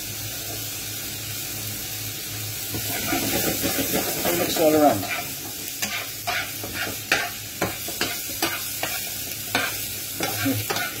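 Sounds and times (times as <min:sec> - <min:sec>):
food sizzling in frying pan: 0:00.0 - 0:11.0
spatula scraping pan: 0:02.8 - 0:11.0.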